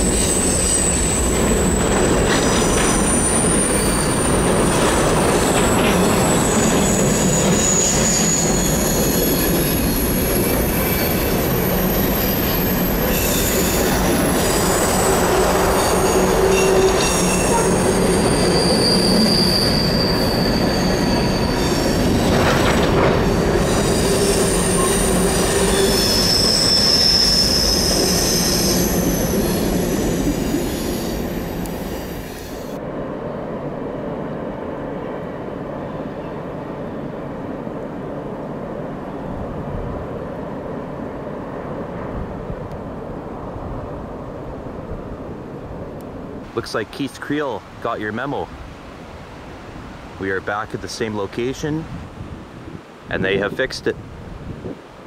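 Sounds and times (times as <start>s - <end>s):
train wheels squealing: 0.0s - 32.8s
train rolling rumble: 0.0s - 47.8s.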